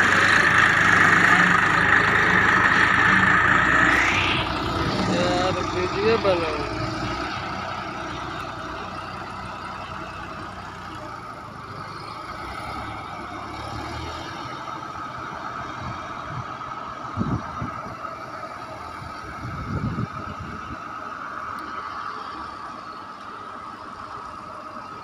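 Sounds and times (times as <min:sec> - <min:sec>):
steady high whine: 0:00.0 - 0:06.7
tractor engine rumbling: 0:00.0 - 0:25.0.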